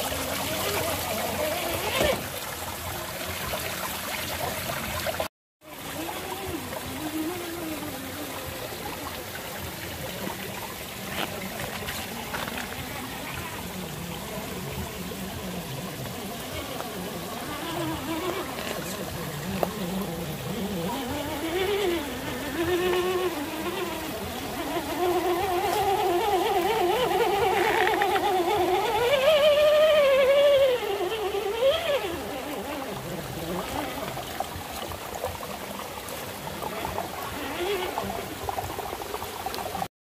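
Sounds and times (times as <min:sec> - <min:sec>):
toy car electric motor whining: 0:00.5 - 0:02.2, 0:19.5 - 0:32.8.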